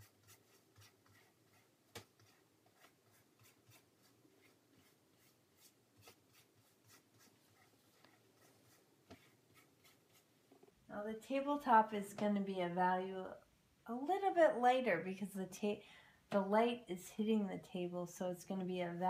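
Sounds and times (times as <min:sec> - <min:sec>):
paintbrush scratchy strokes: 0:00.0 - 0:10.5.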